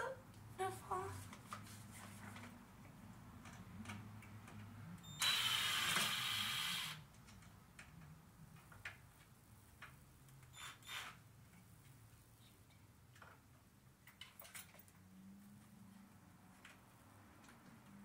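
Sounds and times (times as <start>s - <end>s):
cordless drill driving screw: 5.2s - 7.0s, 10.6s - 11.2s.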